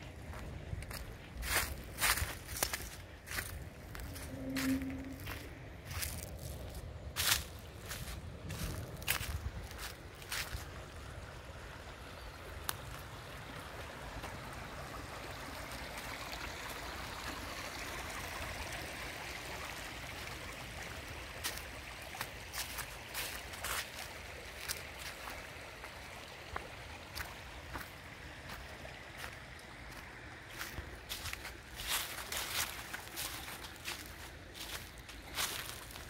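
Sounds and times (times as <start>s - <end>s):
creek water over stones: 0.0s - 36.0s
footsteps on dry leaves: 0.1s - 11.2s, 21.4s - 25.6s, 27.2s - 36.0s.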